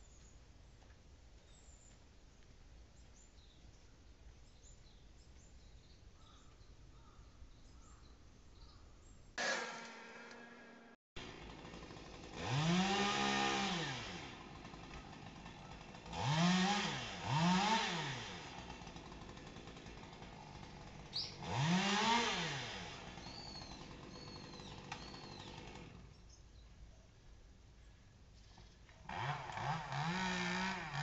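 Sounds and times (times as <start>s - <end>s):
bird chirping: 1.4s - 9.4s
chainsaw revving: 9.4s - 26.1s, 29.0s - 31.0s.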